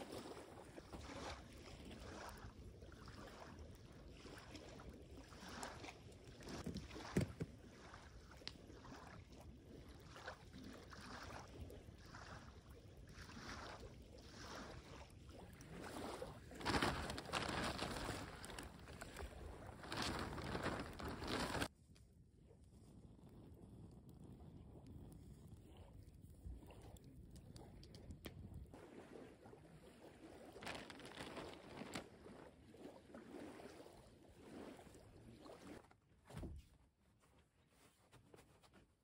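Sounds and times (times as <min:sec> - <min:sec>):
campfire burning: 0:16.3 - 0:21.7, 0:22.6 - 0:28.8.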